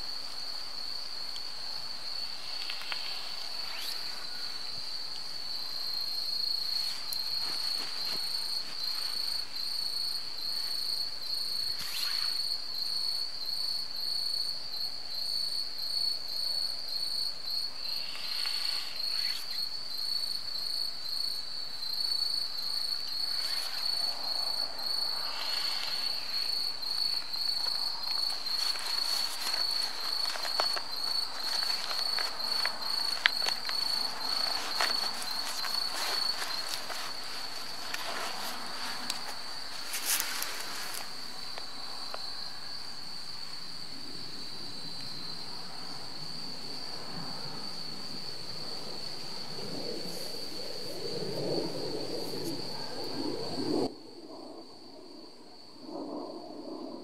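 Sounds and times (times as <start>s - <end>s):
faint pulsing insect chirp: 0.0s - 57.0s
insect high trill: 2.0s - 12.9s, 17.8s - 19.8s, 22.6s - 42.8s.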